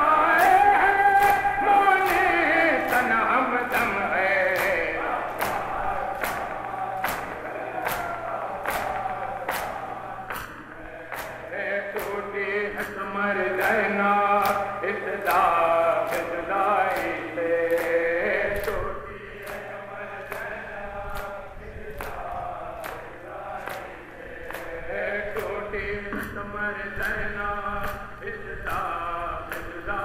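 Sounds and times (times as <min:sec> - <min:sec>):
men chanting over a pa system: 0:00.0 - 0:30.0
hands striking chests: 0:01.2 - 0:11.4.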